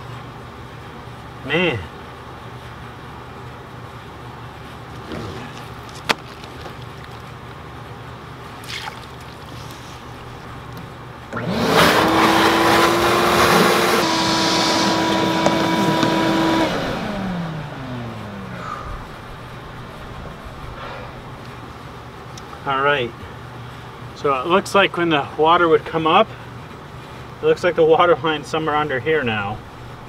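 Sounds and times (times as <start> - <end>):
shop vacuum motor whining: 11.3 - 19.2.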